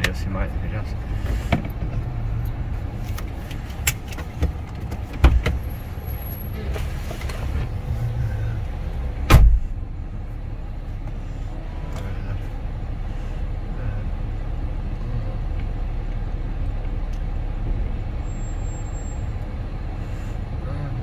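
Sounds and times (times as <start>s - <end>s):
car engine and road rumble: 0.0s - 21.0s
car knocks and bumps: 3.9s - 5.7s, 9.2s - 9.8s.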